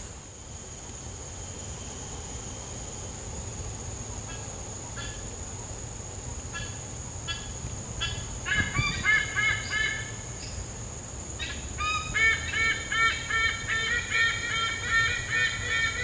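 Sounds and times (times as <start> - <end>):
high-pitched hiss: 0.0 - 16.0.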